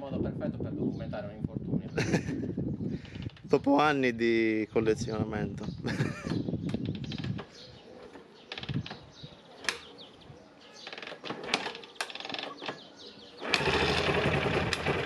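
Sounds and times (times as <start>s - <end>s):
kick-start clicks and knocks: 13.4s - 15.0s
motorcycle engine running: 13.4s - 15.0s.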